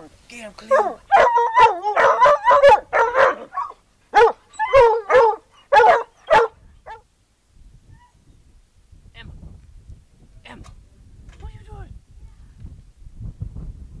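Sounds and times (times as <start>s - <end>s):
dog barking: 0.7s - 7.0s.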